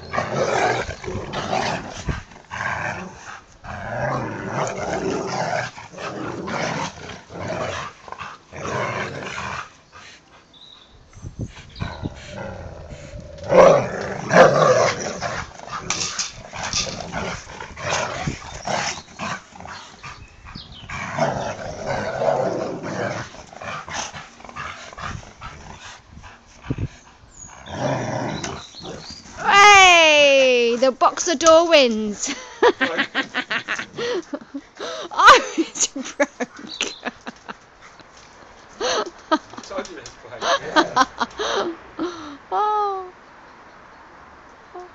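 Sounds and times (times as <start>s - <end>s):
dogs growling in play: 0.0s - 10.1s, 11.6s - 29.5s, 40.4s - 41.6s.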